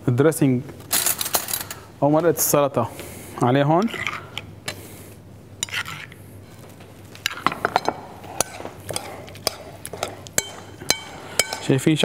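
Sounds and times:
spoon stirring salad: 3.7 - 4.8, 5.6 - 12.0
spoon clinking on glass bowl: 7.5 - 11.7.

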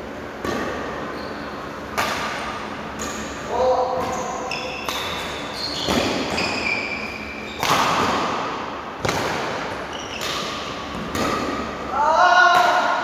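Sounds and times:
rackets hitting shuttlecock: 1.8 - 13.0
shoes squeaking on wooden floor: 5.4 - 7.7, 9.8 - 10.3.

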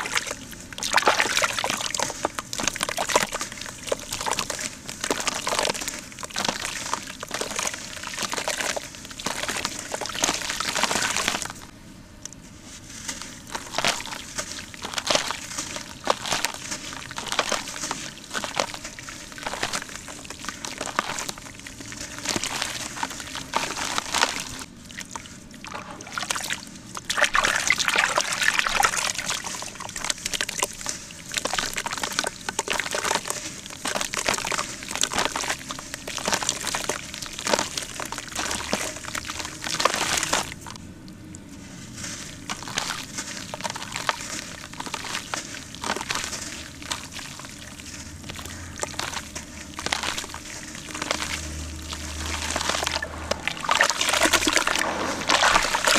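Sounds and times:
water sloshing and trickling: 0.0 - 55.9.

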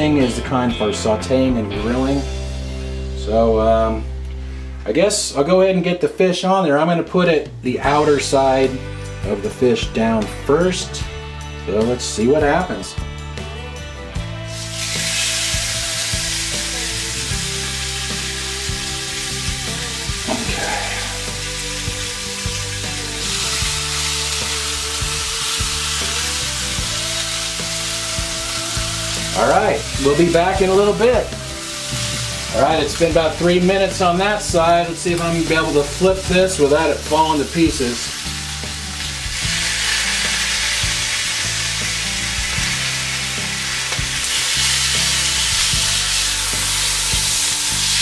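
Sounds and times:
fish sizzling in a grill pan: 14.5 - 48.0.

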